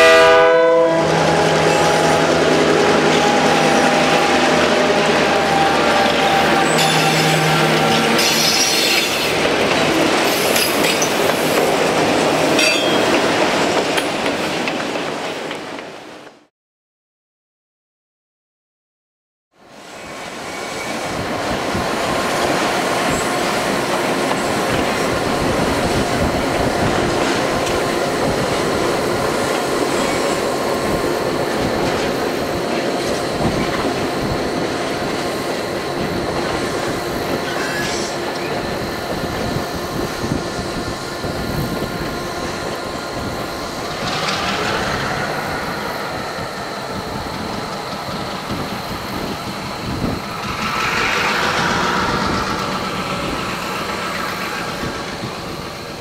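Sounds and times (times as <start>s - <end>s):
diesel locomotive engines running: 0.0s - 14.2s, 19.8s - 56.0s
train wheels squealing: 3.1s - 9.4s, 10.2s - 11.6s, 12.6s - 13.2s, 19.9s - 21.2s, 29.8s - 30.5s, 36.6s - 40.4s, 41.3s - 56.0s
wheels clacking over rail joints: 43.8s - 56.0s.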